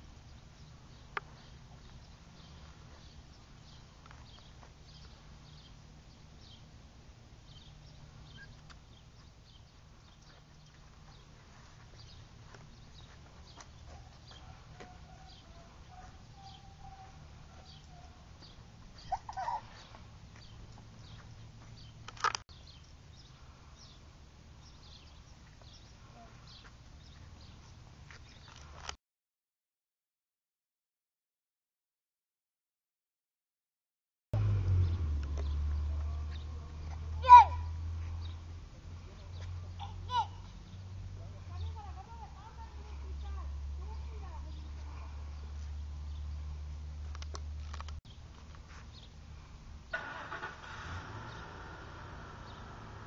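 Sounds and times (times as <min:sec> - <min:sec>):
faint high-pitched chirps: 0:07.9 - 0:08.8.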